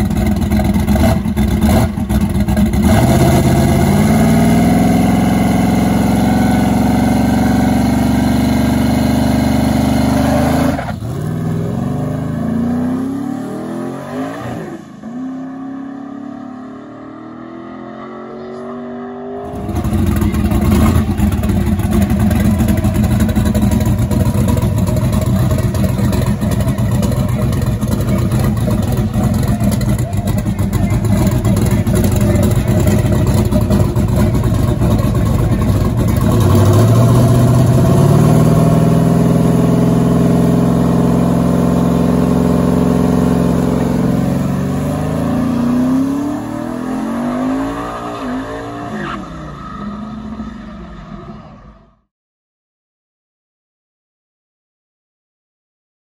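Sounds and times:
loud drag car engine running: 0:00.0 - 0:52.0
engine note climbing in steps: 0:19.4 - 0:47.8.

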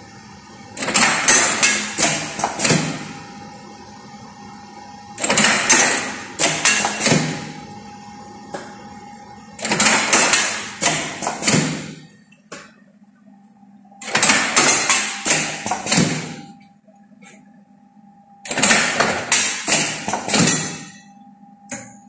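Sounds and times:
steady machine hum: 0:00.0 - 0:22.0
machine rattling and clanking: 0:00.8 - 0:03.1, 0:05.2 - 0:07.5, 0:09.6 - 0:12.1, 0:14.0 - 0:16.5, 0:18.5 - 0:21.0.

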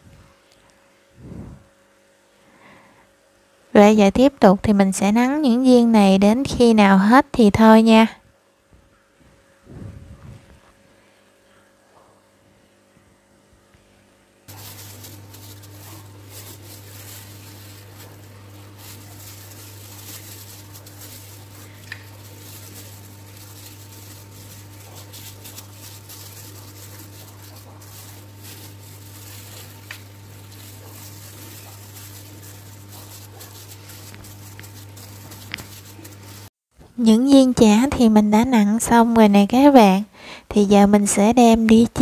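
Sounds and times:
low electrical hum: 0:00.0 - 0:42.0
crackling hiss: 0:14.5 - 0:36.5.

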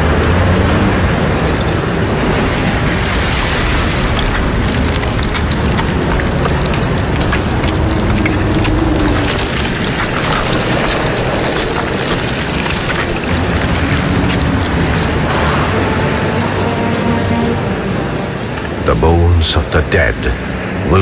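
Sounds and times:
crackling: 0:00.0 - 0:16.2
deep rumble with grinding: 0:00.0 - 0:16.7.

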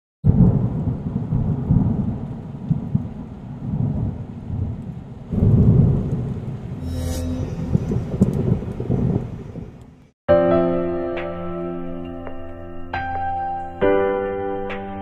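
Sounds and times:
thunder rumbling: 0:00.3 - 0:10.1.

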